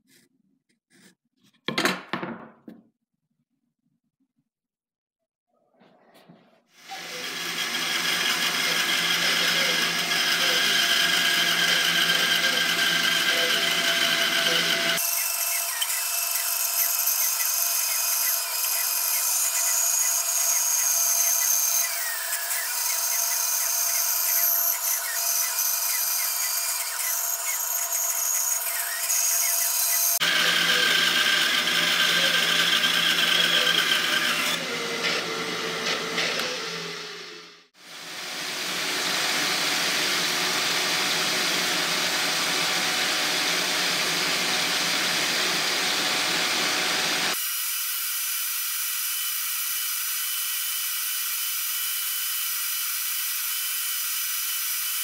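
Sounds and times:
bandsaw cutting wood: 6.8s - 47.4s.

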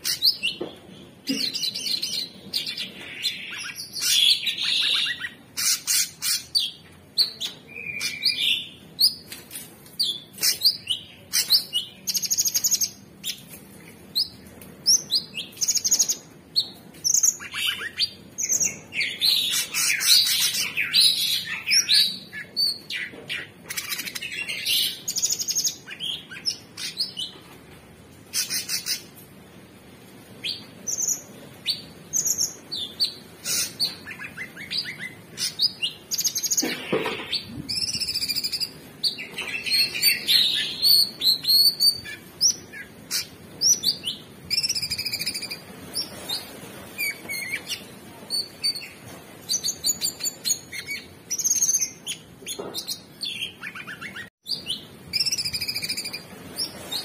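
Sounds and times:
bird singing high-pitched song: 0.0s - 9.4s, 10.0s - 13.5s, 14.1s - 27.4s, 30.4s - 36.6s, 37.3s - 57.0s.

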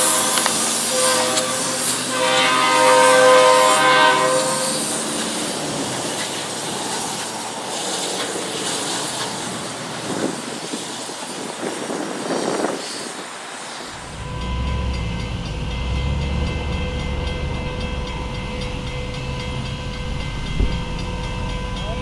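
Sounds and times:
steam whistle chord: 0.0s - 5.6s, 13.9s - 22.0s
steam locomotive chuffing: 0.0s - 22.0s.

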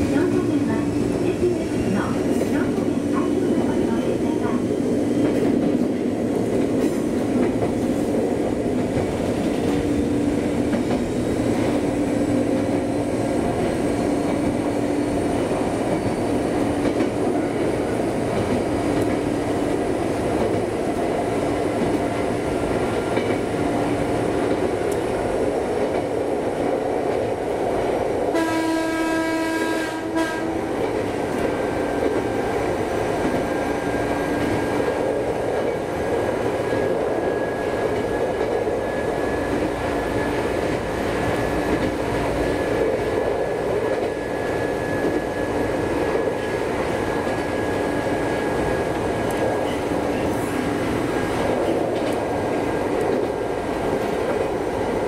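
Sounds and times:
electric train running: 0.0s - 55.0s
train horn: 28.3s - 30.8s.

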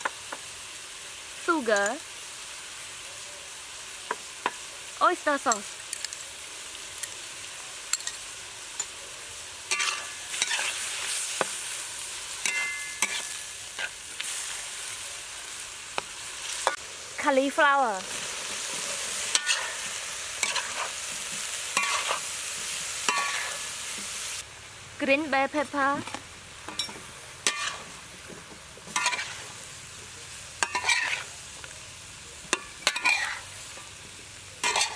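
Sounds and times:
food sizzling in a wok: 0.0s - 34.9s
spatula scraping a pan: 9.7s - 11.8s, 12.4s - 14.5s, 18.2s - 24.1s, 26.0s - 29.6s, 30.6s - 31.3s, 32.5s - 33.5s, 34.6s - 34.9s.

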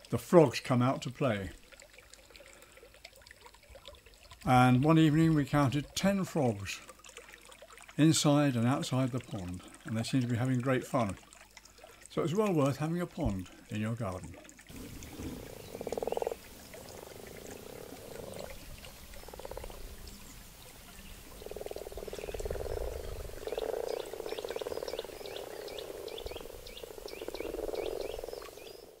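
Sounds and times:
frogs croaking: 14.7s - 29.0s.

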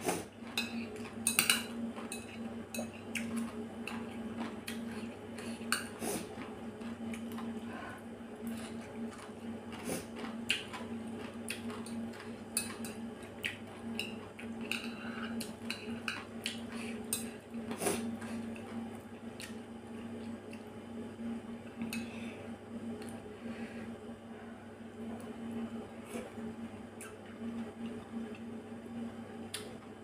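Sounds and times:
steady low hum: 0.0s - 30.0s
chewing: 0.4s - 7.6s, 8.4s - 18.8s.

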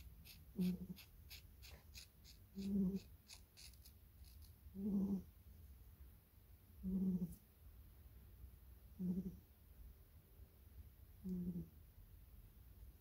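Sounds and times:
scissors snipping fur: 0.0s - 4.6s.

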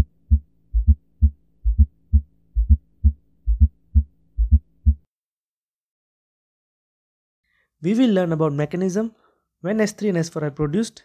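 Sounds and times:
heartbeat with low thuds: 0.0s - 5.1s.

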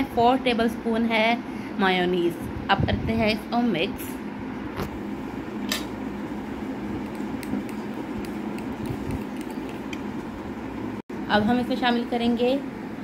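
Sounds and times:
metal spoon stirring in bowl: 7.0s - 10.1s.

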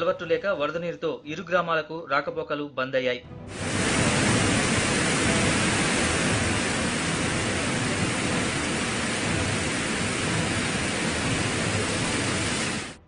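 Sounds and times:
water rushing over a weir: 3.5s - 13.0s.

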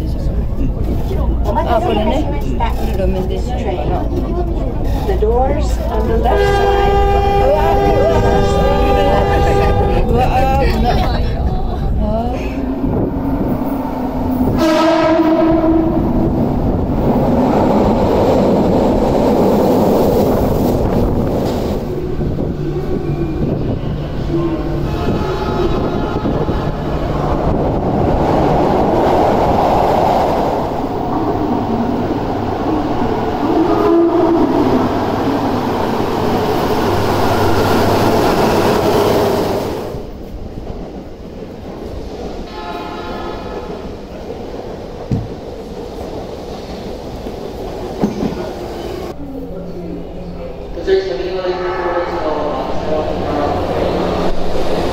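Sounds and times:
subway train rushing and rumbling: 0.0s - 54.9s
train horn blast: 6.2s - 10.3s, 14.5s - 16.2s, 24.2s - 27.0s, 33.4s - 34.8s, 42.5s - 43.8s.

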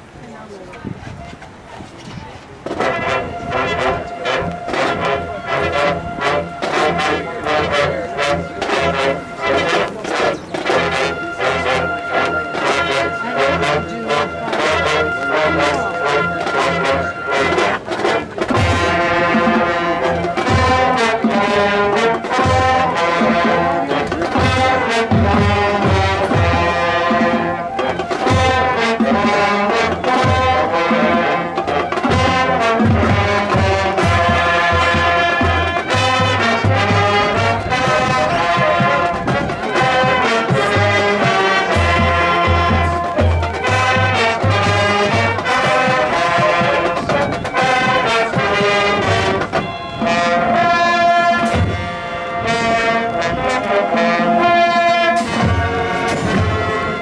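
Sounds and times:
marching band brass: 2.3s - 57.0s
steady drum beat: 2.6s - 52.0s, 54.6s - 57.0s.

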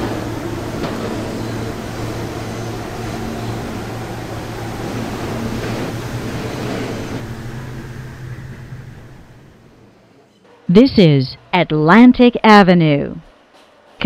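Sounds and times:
train wheel rumble: 0.0s - 10.7s
subway train motor hum: 0.0s - 14.0s.

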